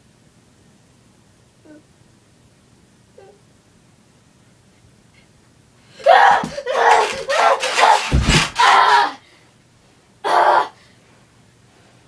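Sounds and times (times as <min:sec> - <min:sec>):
person screaming: 0:06.0 - 0:09.2
heavy thump: 0:08.0 - 0:08.7.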